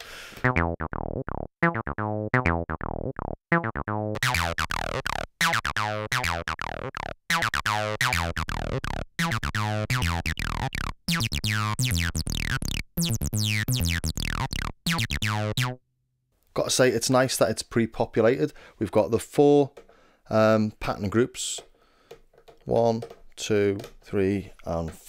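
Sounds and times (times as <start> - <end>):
synthesizer acid bassline: 0.4 - 15.8.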